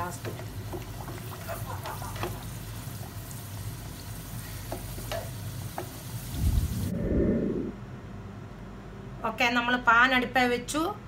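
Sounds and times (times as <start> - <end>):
potatoes sizzling in hot oil: 0.0 - 6.9.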